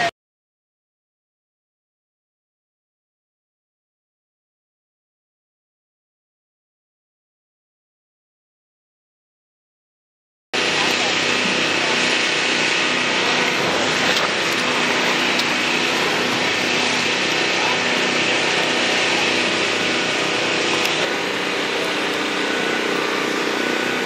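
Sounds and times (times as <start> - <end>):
small engine running: 10.6 - 24.0.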